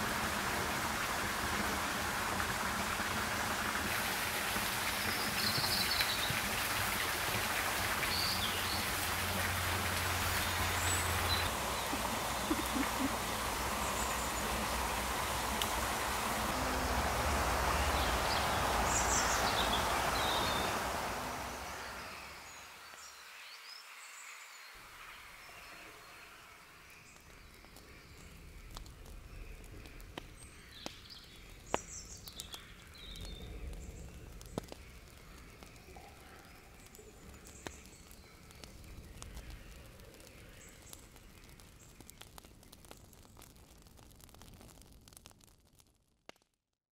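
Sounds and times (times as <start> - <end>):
wood fire crackling: 0.0 - 22.6, 26.8 - 46.6
running water: 0.0 - 23.1
birds chirping: 4.6 - 43.0.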